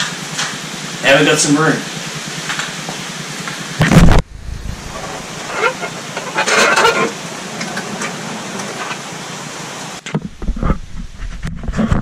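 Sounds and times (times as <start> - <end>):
steady hiss: 0.0 - 11.2
casters rolling and rattling: 4.7 - 8.1.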